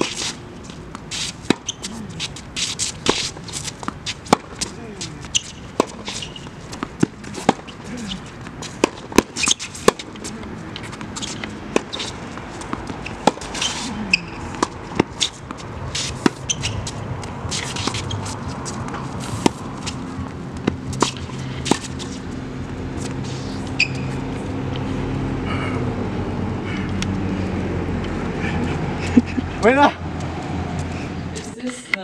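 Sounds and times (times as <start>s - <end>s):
shoes scuffing on court: 0.0s - 25.0s
low engine hum: 0.0s - 32.0s
tennis ball popping off rackets: 3.0s - 4.7s, 5.4s - 22.2s.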